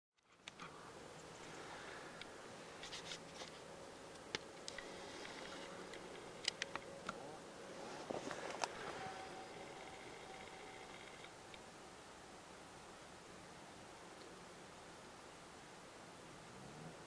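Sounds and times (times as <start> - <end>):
faint steady hiss: 0.2 - 17.0
small sharp clicks: 4.1 - 7.2.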